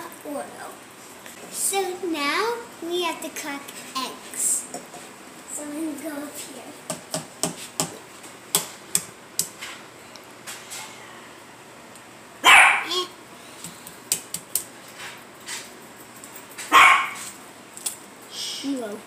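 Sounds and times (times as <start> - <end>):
small dog barking: 12.4 - 13.1, 16.7 - 17.3.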